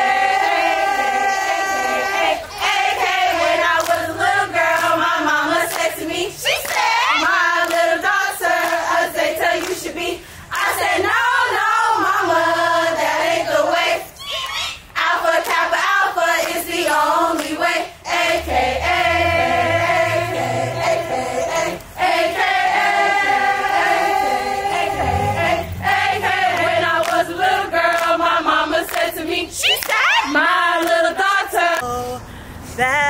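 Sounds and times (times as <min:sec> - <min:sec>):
women singing in unison: 0:00.0 - 0:32.2
hand claps: 0:03.8 - 0:04.0, 0:07.6 - 0:07.9, 0:26.6 - 0:27.2, 0:27.9 - 0:28.2, 0:28.9 - 0:29.1, 0:30.8 - 0:31.0.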